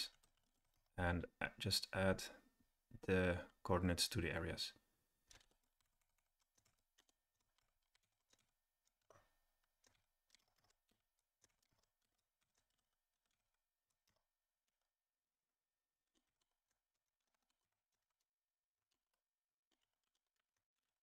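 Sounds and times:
typing on computer keyboard: 0:05.3 - 0:14.9.

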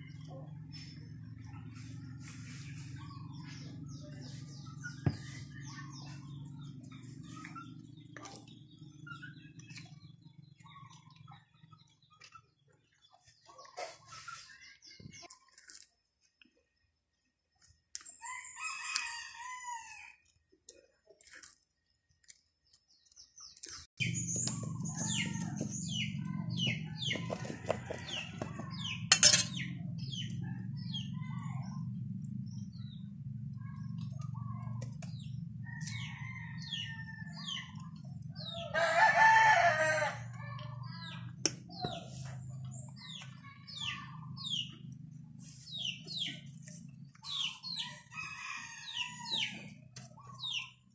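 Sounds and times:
rooster crowing: 0:18.2 - 0:20.2, 0:26.8 - 0:28.7, 0:35.6 - 0:37.6, 0:38.4 - 0:40.4, 0:47.7 - 0:49.7
bird chirps: 0:22.7 - 0:38.7
low hum: 0:28.9 - 0:36.1.

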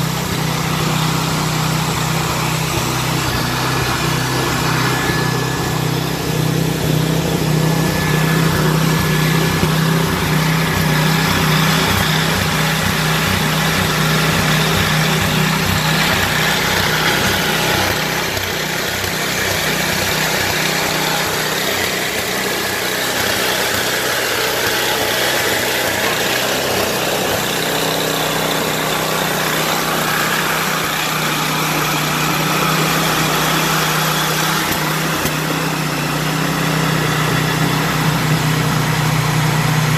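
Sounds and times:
hair dryer running: 0:00.0 - 0:39.9.

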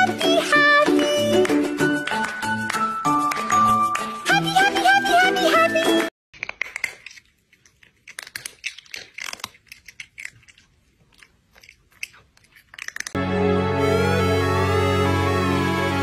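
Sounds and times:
cat chewing noisily: 0:06.4 - 0:13.2.

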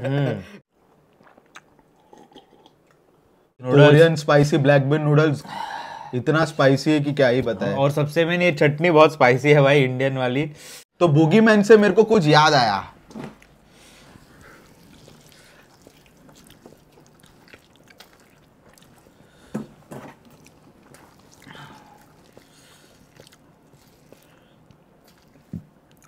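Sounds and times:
man chewing noodles: 0:00.8 - 0:03.2, 0:13.4 - 0:26.0.

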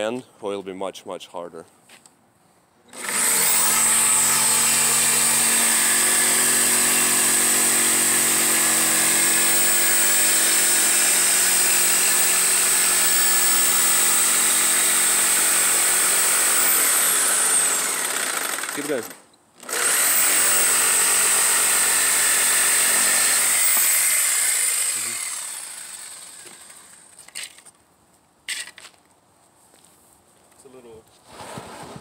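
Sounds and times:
jigsaw sawing wood: 0:02.9 - 0:27.1.

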